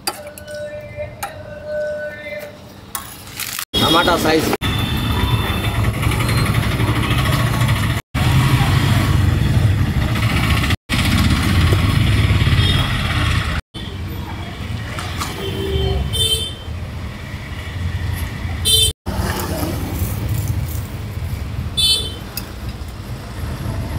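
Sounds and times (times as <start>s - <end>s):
motorbikes and vehicles passing: 4.2s - 15.5s, 16.7s - 23.9s.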